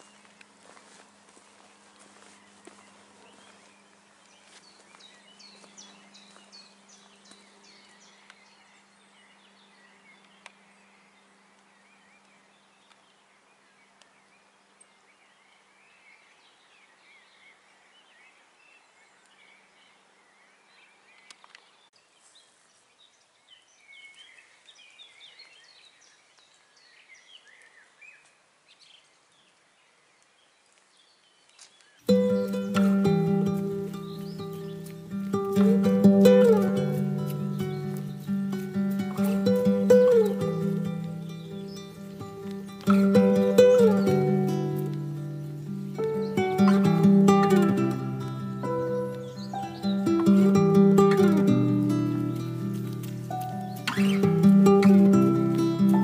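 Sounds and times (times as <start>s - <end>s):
small birds chirping: 0.0s - 56.0s
music with plucked strings: 32.0s - 56.0s.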